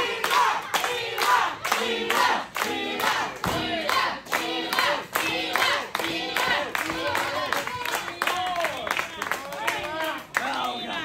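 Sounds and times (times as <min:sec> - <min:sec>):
crowd shouting and chanting: 0:00.0 - 0:08.6
rhythmic clapping: 0:00.0 - 0:11.0.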